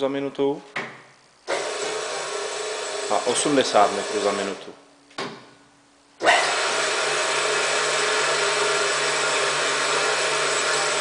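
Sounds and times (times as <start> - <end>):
bandsaw motor running: 1.4 - 4.7, 6.2 - 11.0.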